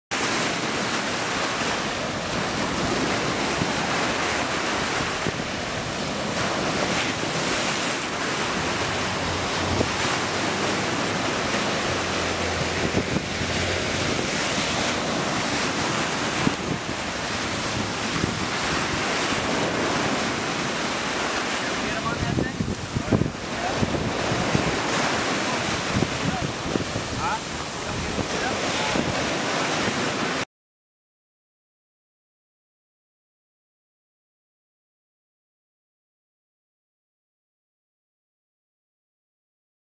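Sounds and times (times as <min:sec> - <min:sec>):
ocean surf breaking: 0:00.1 - 0:30.5
wind on microphone: 0:01.3 - 0:30.4.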